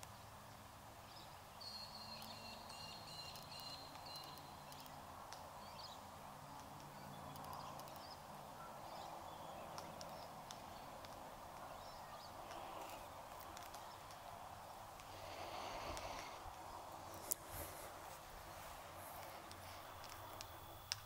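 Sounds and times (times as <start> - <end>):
steady background hiss: 0.0 - 21.0
bird bill cracking cones: 1.6 - 21.0.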